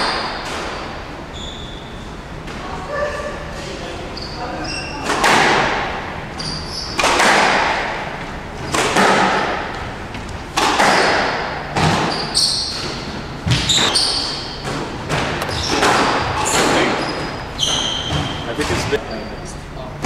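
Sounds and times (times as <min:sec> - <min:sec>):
high squeaks: 0:00.0 - 0:02.2, 0:04.0 - 0:05.3, 0:06.3 - 0:07.2, 0:11.9 - 0:14.7, 0:15.4 - 0:19.7
squash ball hitting racket and walls: 0:00.0 - 0:03.8, 0:04.4 - 0:19.0.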